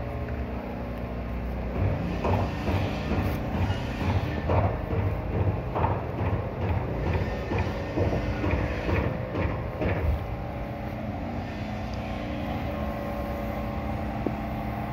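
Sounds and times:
motor humming: 0:06.2 - 0:14.9.

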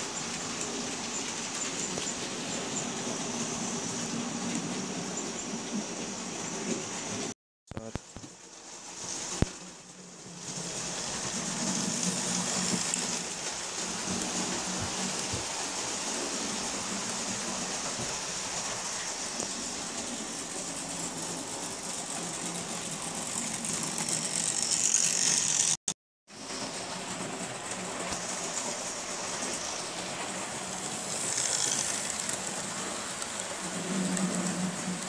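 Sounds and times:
model train motor whirring and rattling: 0:10.4 - 0:25.8, 0:26.5 - 0:35.0.

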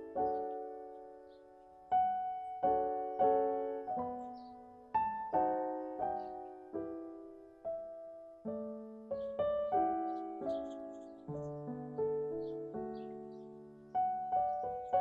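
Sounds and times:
gentle piano music: 0:00.0 - 0:15.0.

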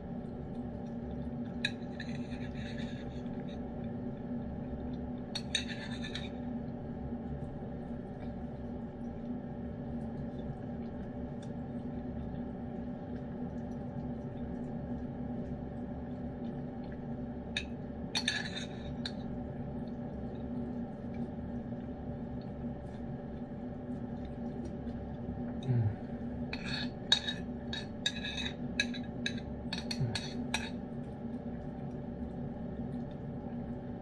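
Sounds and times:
steady low hum: 0:00.0 - 0:34.0
spoon scraping ceramic bowl: 0:05.4 - 0:06.4, 0:26.5 - 0:30.8
cat licking and chewing: 0:07.2 - 0:26.2.

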